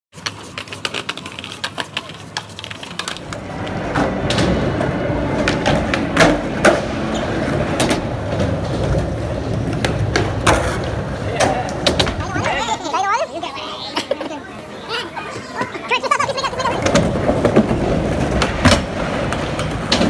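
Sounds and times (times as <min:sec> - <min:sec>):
skateboard wheels rolling on concrete: 0:00.1 - 0:20.0
skateboards clacking on ground: 0:00.2 - 0:20.0.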